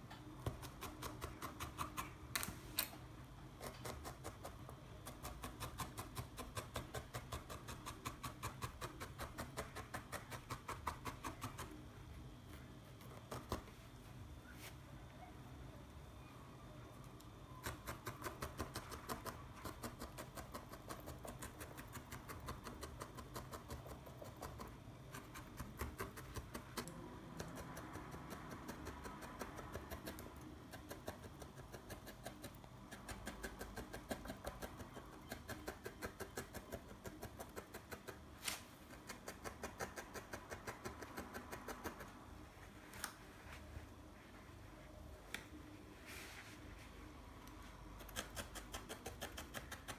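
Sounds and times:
felting needle poking foam: 3.6 - 11.8, 17.5 - 42.2, 47.9 - 49.9.

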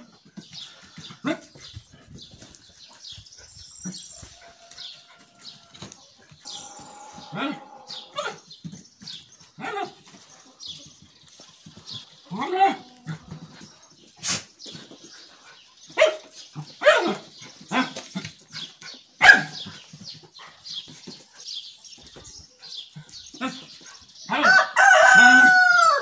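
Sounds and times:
dog barking: 16.0 - 16.2, 16.8 - 17.9, 19.2 - 19.6.

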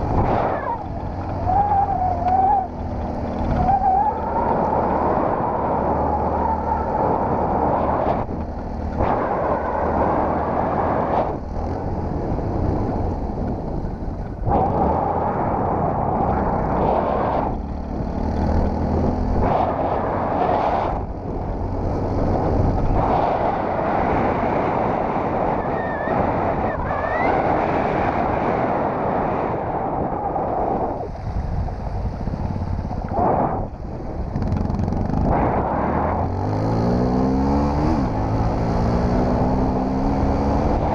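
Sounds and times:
motorcycle engine running: 0.0 - 5.4, 31.1 - 40.9
wind noise on microphone: 0.0 - 40.9.

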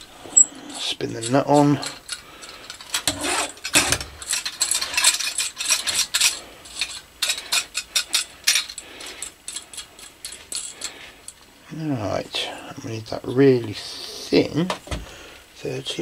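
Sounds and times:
small parts handled on workbench: 0.4 - 11.5.

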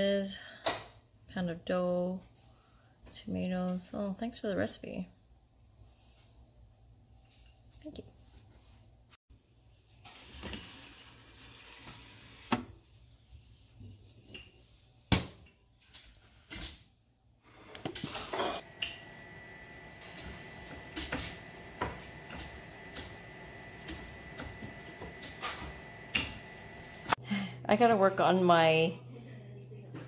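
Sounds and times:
oven humming: 18.3 - 27.5.

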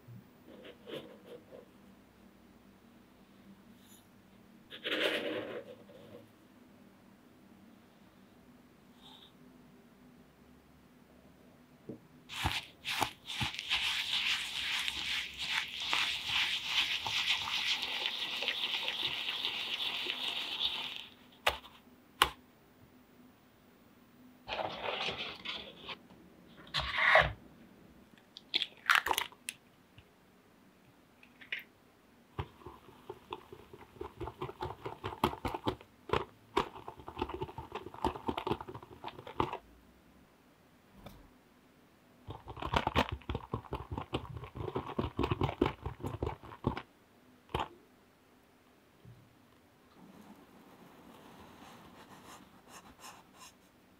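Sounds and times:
knocks and scrapes: 4.7 - 6.3, 24.5 - 26.0, 26.6 - 27.4
whisk scraping glass bowl: 12.3 - 21.0.

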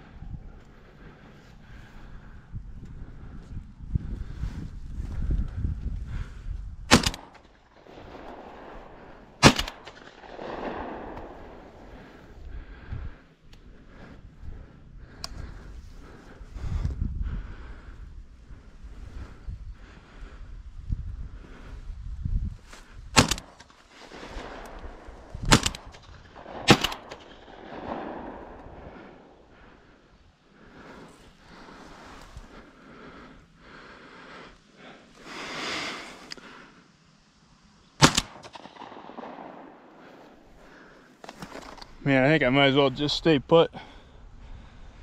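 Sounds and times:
wind rumble on microphone: 0.0 - 9.4, 10.0 - 23.2, 24.1 - 32.7
shotgun shots: 6.9 - 12.2, 23.2 - 29.3, 38.0 - 40.3.

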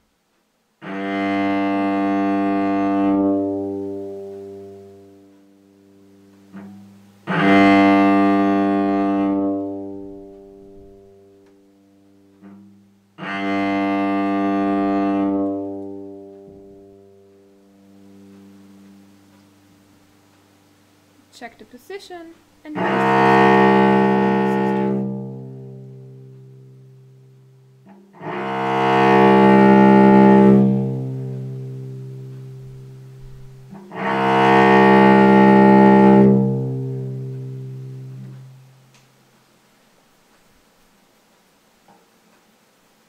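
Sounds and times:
cello bowed notes: 0.8 - 20.4, 22.1 - 39.0.

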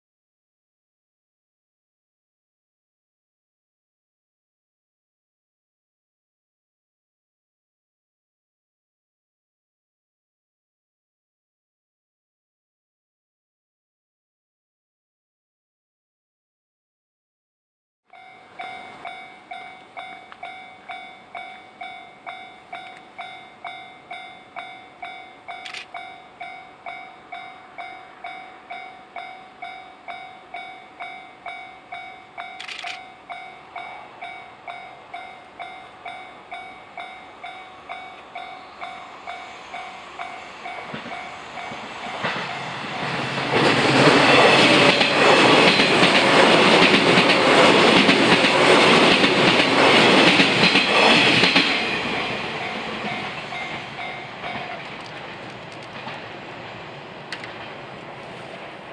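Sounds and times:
level-crossing warning bell: 18.1 - 55.1
electric train passing: 18.1 - 58.9.

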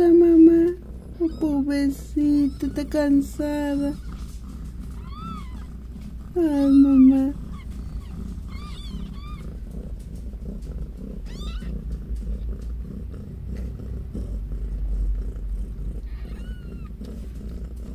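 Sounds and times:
cat purring: 0.0 - 17.9
kittens squeaking: 1.0 - 9.7, 11.2 - 12.7, 16.0 - 17.9.

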